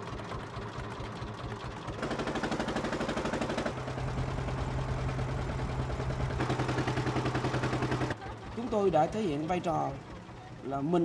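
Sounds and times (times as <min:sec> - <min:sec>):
boat engine pulsing: 0:00.0 - 0:11.0.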